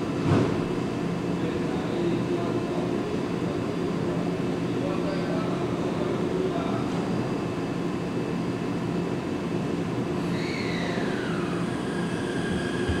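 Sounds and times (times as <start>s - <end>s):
metro station rumble and hum: 0.0s - 13.0s.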